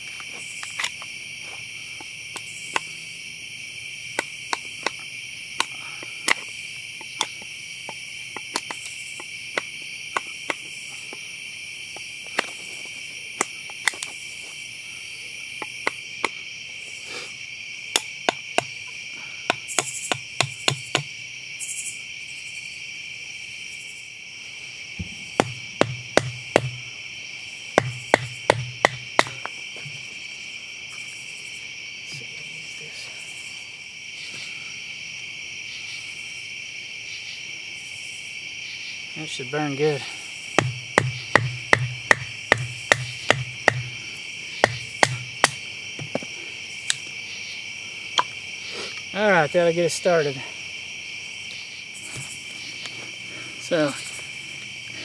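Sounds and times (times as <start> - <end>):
night insect chorus: 0.0 - 55.0
sharp wooden knocks: 17.9 - 18.8, 19.5 - 21.1, 25.0 - 26.9, 27.8 - 29.5, 40.6 - 46.3.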